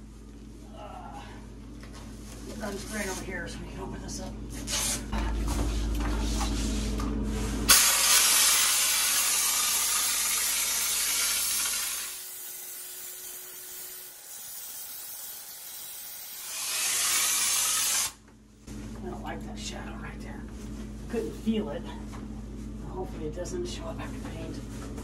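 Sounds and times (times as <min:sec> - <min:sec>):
texture sprayer gun hissing: 0:07.7 - 0:18.2.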